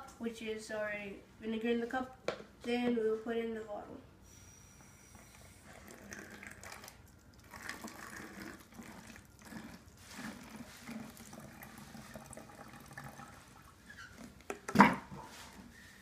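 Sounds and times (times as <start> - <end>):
liquid trickling into bottle: 5.6 - 14.4.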